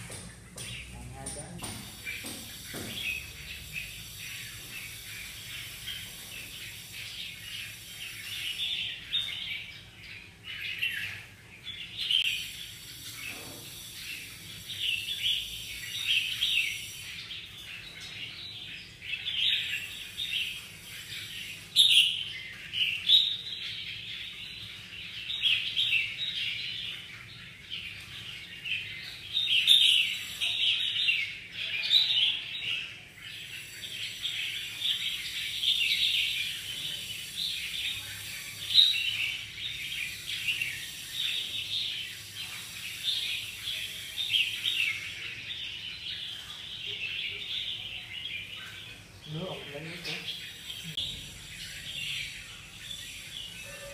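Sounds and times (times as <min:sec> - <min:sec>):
birds chirping: 0:00.0 - 0:53.9.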